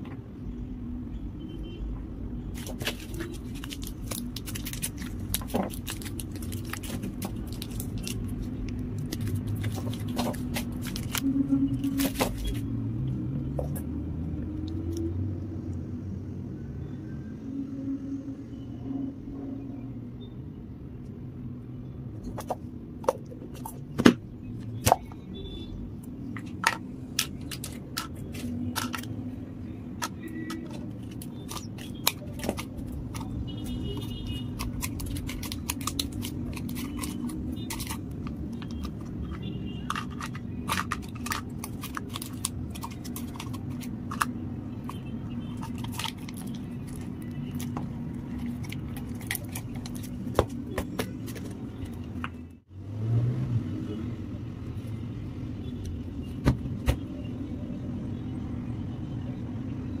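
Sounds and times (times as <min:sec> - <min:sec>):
foil and plastic wrappers crinkling: 0:02.6 - 0:12.6, 0:30.4 - 0:51.6.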